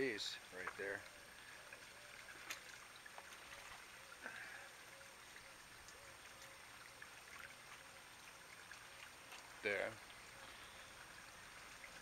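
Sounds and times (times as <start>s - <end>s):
water trickling: 0.0s - 12.0s
light splashes and clicks: 0.6s - 4.0s, 5.8s - 10.4s.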